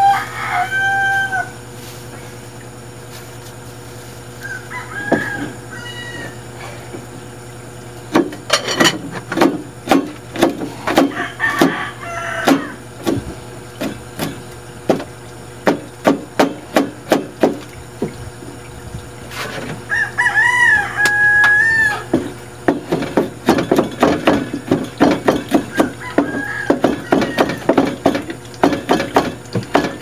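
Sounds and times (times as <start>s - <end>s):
knife chopping on a board: 15.7s - 17.6s.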